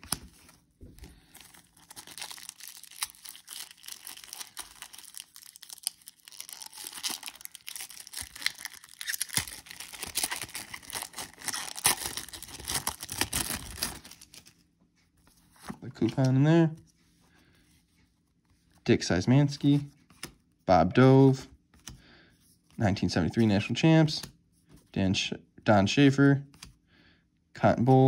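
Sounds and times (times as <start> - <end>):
wrapper tearing and crinkling: 1.4 - 14.5.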